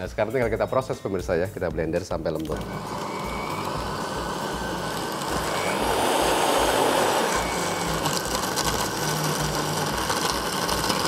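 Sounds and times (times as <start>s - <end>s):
blender blending ice: 2.4s - 11.0s.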